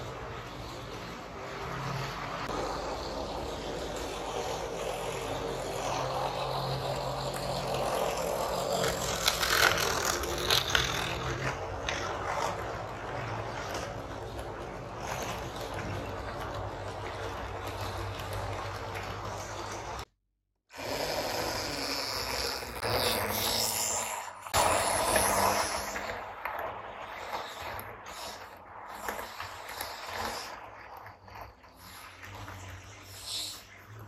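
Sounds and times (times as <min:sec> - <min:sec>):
model train motor whir: 0:00.0 - 0:20.1, 0:20.8 - 0:34.0
sharp clicks of train passing: 0:00.0 - 0:20.1, 0:24.6 - 0:33.5.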